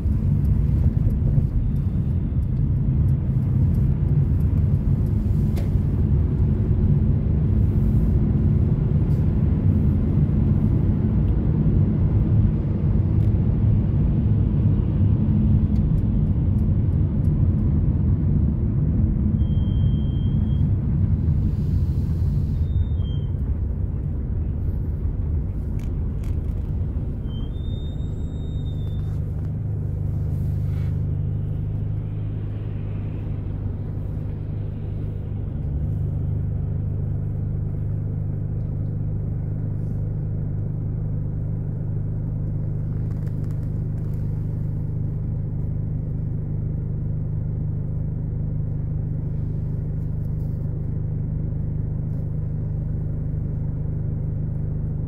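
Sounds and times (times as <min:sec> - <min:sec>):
car engine rumble: 0:00.0 - 0:55.0
road noise: 0:00.0 - 0:55.0.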